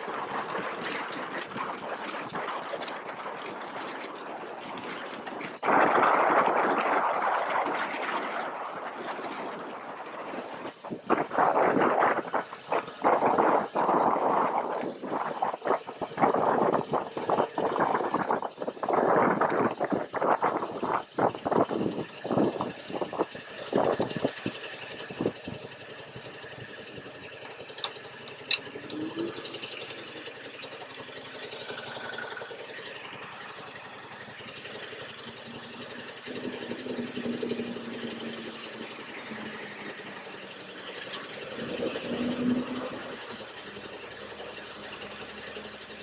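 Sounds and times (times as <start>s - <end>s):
wind buffeting microphone: 0.0s - 27.0s
motorcycle engine idling: 9.2s - 46.0s.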